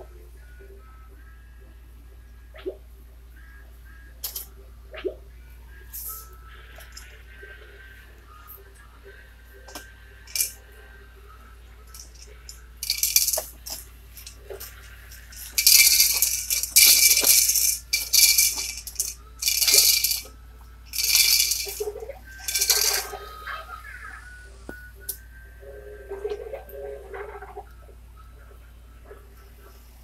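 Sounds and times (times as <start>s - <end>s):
plastic bead rattle toy rattling: 10.3s - 10.6s, 11.9s - 20.3s, 20.9s - 23.1s.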